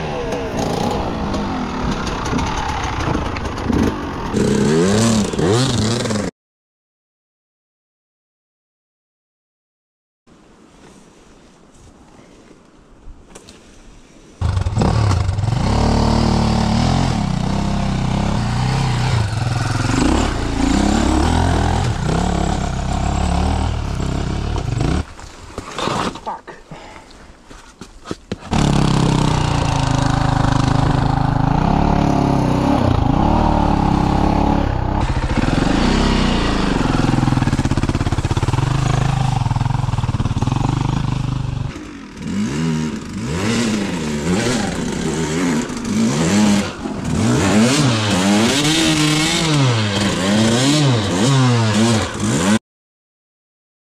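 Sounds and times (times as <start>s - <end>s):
dirt bike engine revving: 0.0s - 6.3s, 14.4s - 25.1s, 28.5s - 52.6s.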